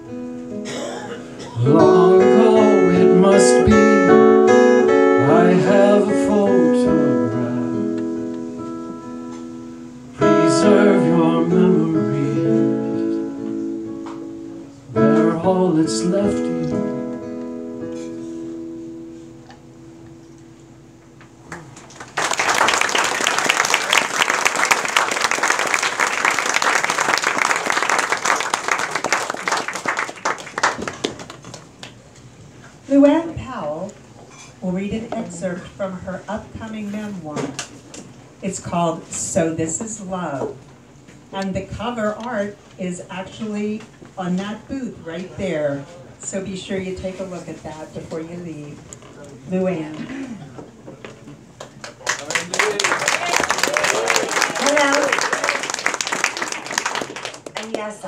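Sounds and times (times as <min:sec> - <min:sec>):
acoustic guitar strummed chords: 0:00.0 - 0:21.9
audience applause: 0:21.5 - 0:31.9, 0:51.7 - 0:57.8.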